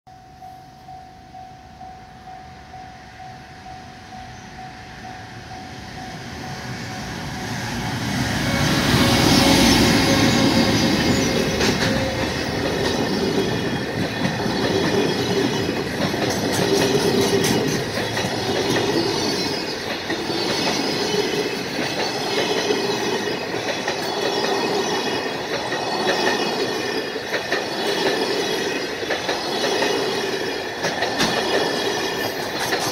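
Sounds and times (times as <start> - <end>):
electric locomotive rumble: 0.3 - 32.9
high wheel squeal: 5.6 - 15.7, 16.9 - 27.9.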